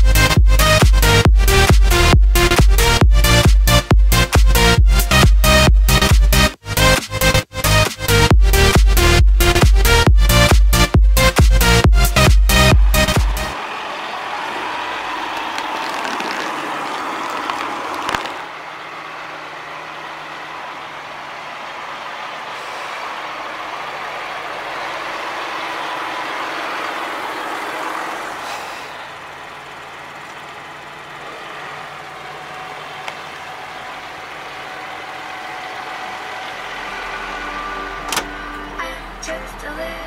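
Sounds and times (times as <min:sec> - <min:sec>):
tractor diesel engine running: 0:15.8 - 0:40.0.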